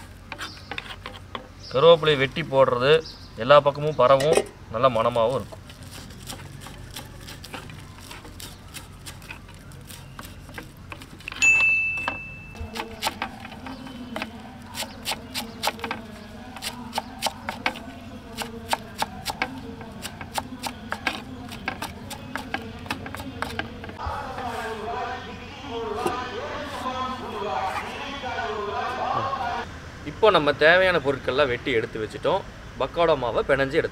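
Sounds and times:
knife chopping on wooden block: 12.0s - 24.0s.

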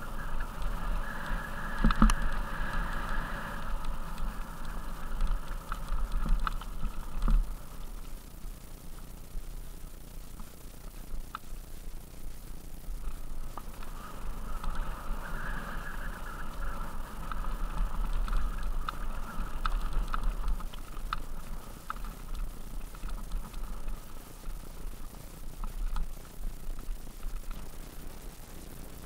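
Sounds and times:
stones clicking against bike: 0.0s - 8.2s, 13.0s - 27.8s
bike rattling: 0.0s - 9.2s, 12.6s - 27.8s
bike tyres rumbling over gravel: 0.0s - 11.2s, 12.0s - 28.2s
low rumble: 0.0s - 28.3s
high-pitched whine: 0.0s - 29.0s.

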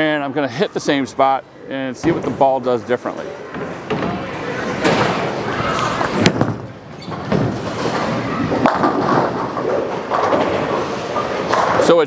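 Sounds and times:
bowling ball rolling: 3.5s - 11.8s
ball crashing into pins: 4.8s - 11.8s.

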